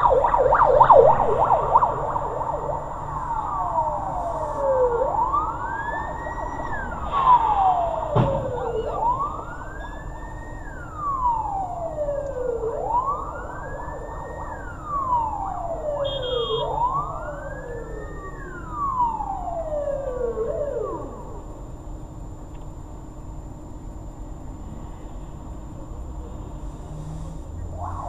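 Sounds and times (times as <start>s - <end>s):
police siren wailing: 0.0s - 21.8s, 27.6s - 28.0s.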